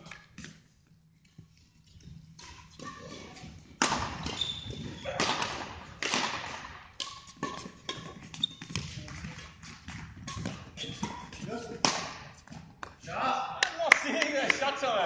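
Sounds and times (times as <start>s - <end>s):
shoes squeaking: 0.0s - 5.5s, 7.2s - 12.8s
rackets hitting shuttlecock: 1.9s - 13.0s.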